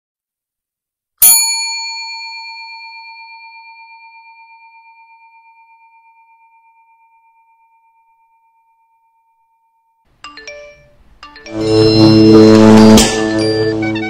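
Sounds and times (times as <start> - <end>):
desk service bell ringing: 10.2 - 14.0.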